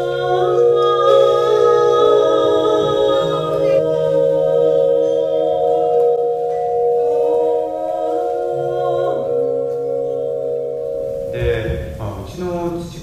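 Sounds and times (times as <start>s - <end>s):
music of long held notes: 0.0s - 12.2s.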